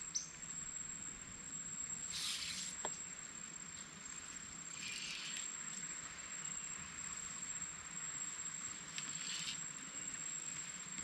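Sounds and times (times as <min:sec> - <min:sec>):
high-pitched insect whine: 0:00.0 - 0:11.0
soft hiss: 0:01.7 - 0:11.0.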